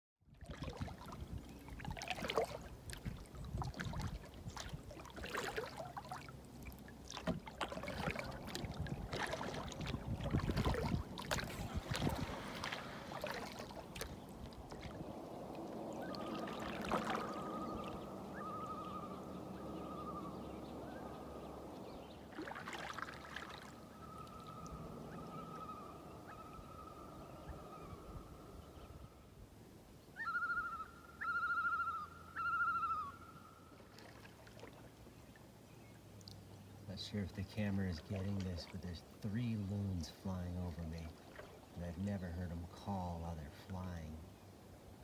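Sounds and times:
canoe paddle strokes: 0.4s - 18.5s, 22.2s - 24.8s, 33.8s - 35.4s, 37.0s - 42.1s
water gurgling: 0.4s - 18.7s
loons calling: 11.0s - 29.3s, 30.2s - 34.0s.

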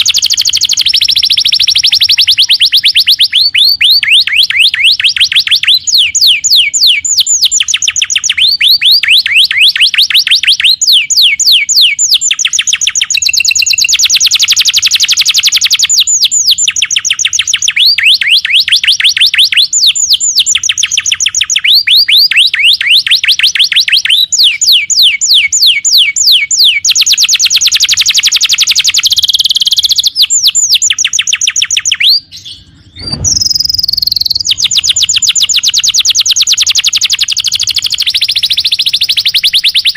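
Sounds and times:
canary singing in trills: 0.0s - 39.9s
short low thud: 32.7s - 34.3s.

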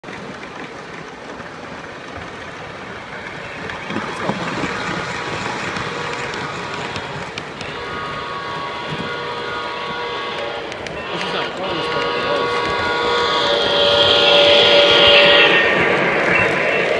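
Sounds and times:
model train wheels clattering: 0.1s - 14.2s
locomotive whistle: 3.4s - 16.9s.

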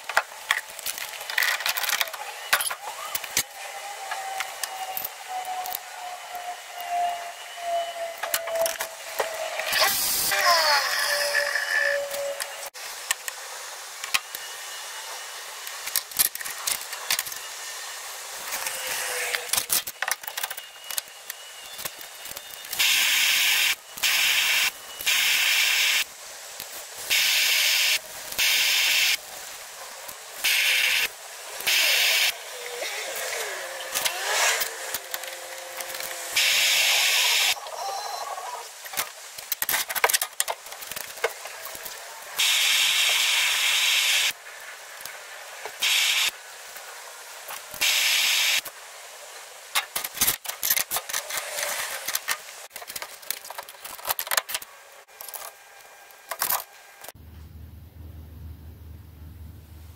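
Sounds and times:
metal parts clicking and knocking: 0.0s - 3.4s, 15.8s - 17.4s, 19.4s - 22.8s, 38.9s - 41.8s, 49.8s - 55.6s, 56.3s - 56.7s
gas torch hissing: 9.0s - 15.8s, 21.2s - 37.6s, 41.7s - 45.2s, 45.8s - 46.8s, 47.7s - 48.7s.

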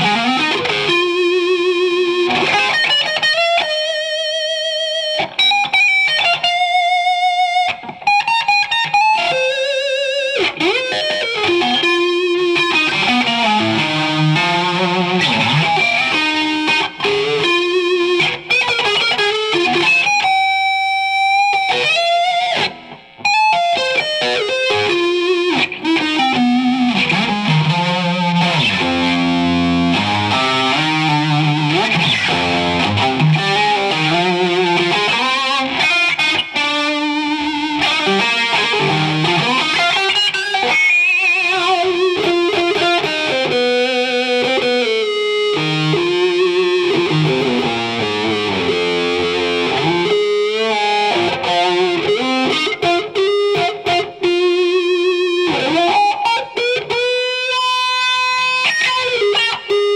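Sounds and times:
electric guitar lead: 0.0s - 59.9s.

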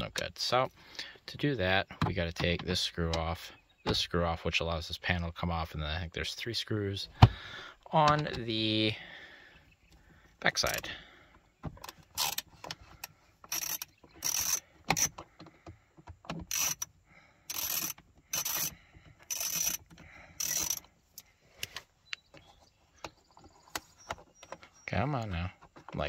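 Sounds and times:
socket ratchet clicking: 11.8s - 12.6s, 13.4s - 15.3s, 16.2s - 16.9s, 17.5s - 21.3s.

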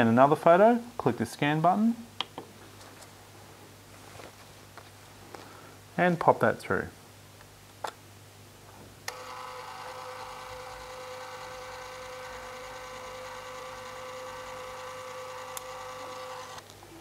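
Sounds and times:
scanner feed motor whine: 9.1s - 16.6s
scanner motor click: 9.1s - 16.6s.

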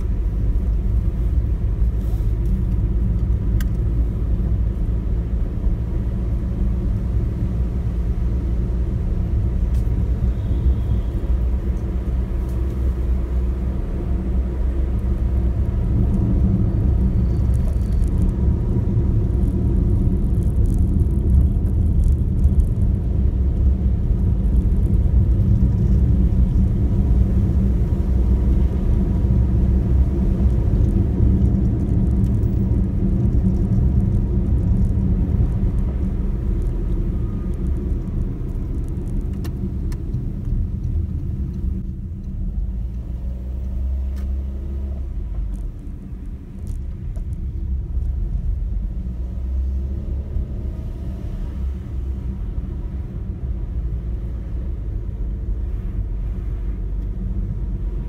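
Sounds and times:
car engine and tyre rumble: 0.0s - 58.0s.

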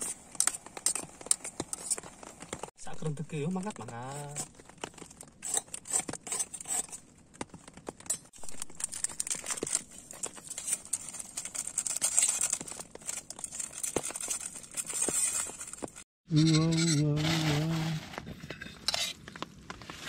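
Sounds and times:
plastic sachets crinkling and tearing: 8.3s - 16.0s.

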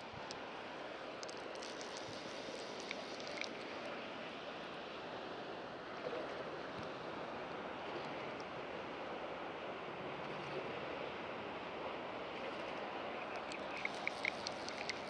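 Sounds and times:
flowing water rushing: 0.0s - 15.0s
faint light clicks: 1.2s - 3.7s, 13.3s - 15.0s.

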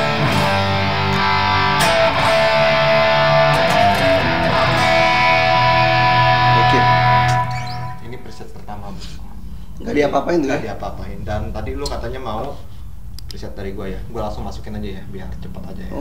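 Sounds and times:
electric guitar chords: 0.0s - 8.0s.

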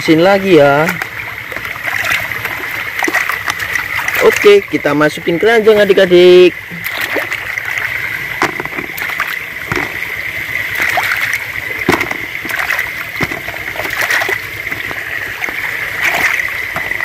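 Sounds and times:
stream running: 0.0s - 17.0s
plastic toys knocking: 8.4s - 10.1s, 11.8s - 17.0s
hand splashing in water: 8.4s - 17.0s.

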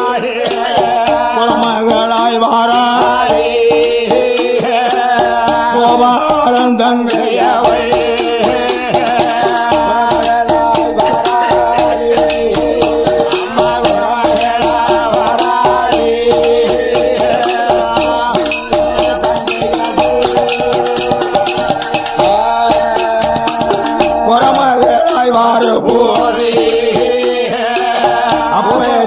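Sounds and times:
fast rattling percussion beat: 0.0s - 29.0s
wavering bending melody: 7.2s - 29.0s.

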